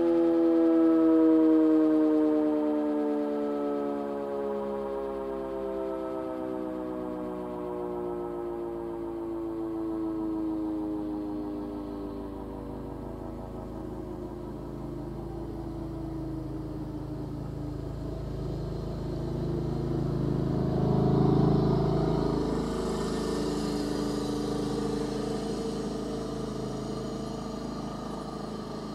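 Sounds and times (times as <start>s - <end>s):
warning siren winding down: 0.0s - 28.9s
road vehicle passing: 11.2s - 28.9s.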